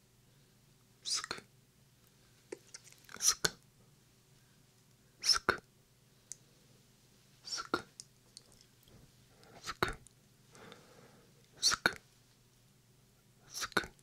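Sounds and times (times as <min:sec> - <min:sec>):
whispered mouth sounds: 0:01.0 - 0:01.5, 0:03.1 - 0:03.6, 0:05.2 - 0:05.6, 0:07.4 - 0:08.0, 0:09.4 - 0:10.1, 0:11.5 - 0:12.0, 0:13.4 - 0:14.0.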